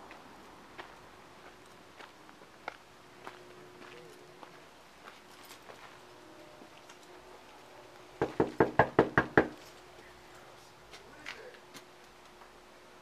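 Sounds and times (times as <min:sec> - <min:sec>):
knuckles knocking on door: 0:08.2 - 0:09.6.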